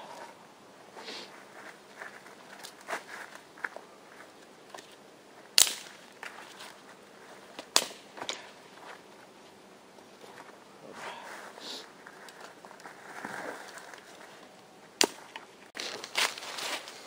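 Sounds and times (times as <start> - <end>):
wood cracking: 4.7 - 6.8.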